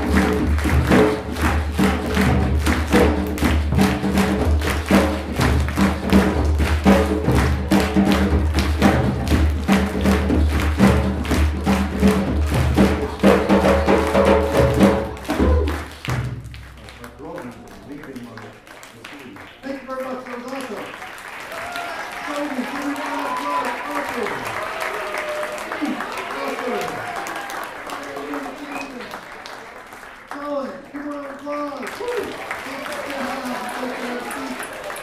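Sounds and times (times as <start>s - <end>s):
hand drums: 0.0s - 16.9s.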